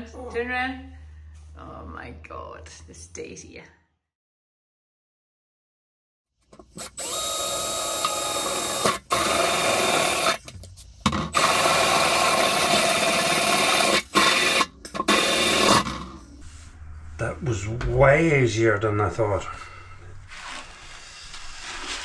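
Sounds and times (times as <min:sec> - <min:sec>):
cordless drill boring through steel: 0:06.7 - 0:10.4, 0:11.3 - 0:16.0.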